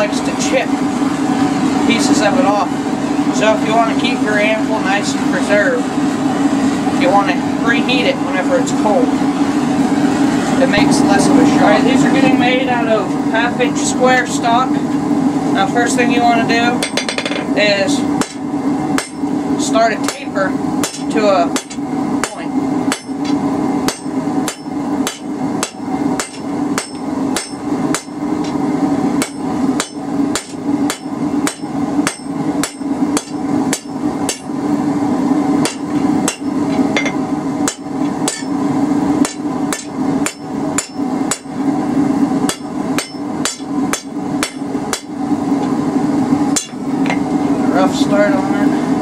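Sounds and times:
steady hum: 0.0 - 49.0
hammer striking steel on anvil: 16.8 - 17.5, 18.2 - 18.4, 19.0 - 19.3, 20.0 - 28.6, 29.2 - 34.5, 35.6 - 38.6, 39.2 - 41.5, 42.4 - 45.2, 46.5 - 47.3.

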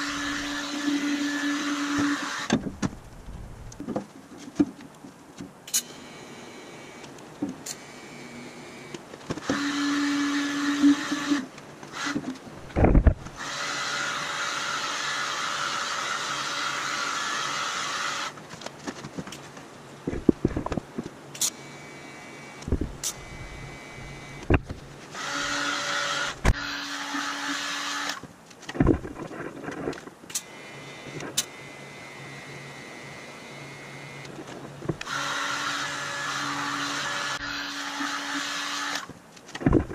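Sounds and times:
power tool whining on steel: 0.0 - 2.5, 7.7 - 12.2, 13.3 - 18.4, 25.2 - 28.2, 30.4 - 34.3, 35.0 - 39.1.

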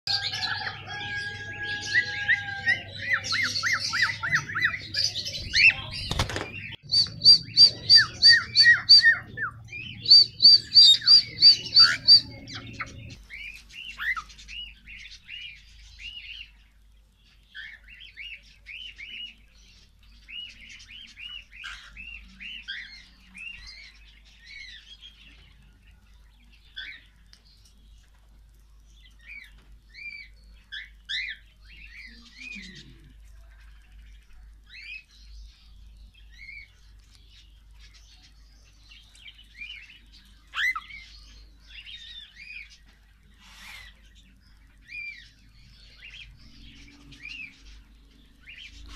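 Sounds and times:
cockatiels whistling and chirping: 6.9 - 13.0, 40.5 - 41.0.

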